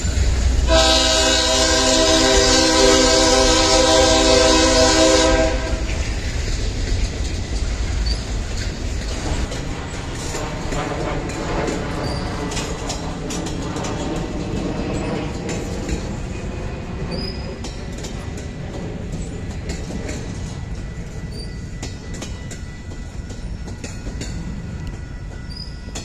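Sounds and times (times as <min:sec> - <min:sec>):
train rumbling past: 0:00.0 - 0:26.0
train horn chord: 0:00.5 - 0:06.1
wheel clicks over rail joints: 0:06.3 - 0:16.3.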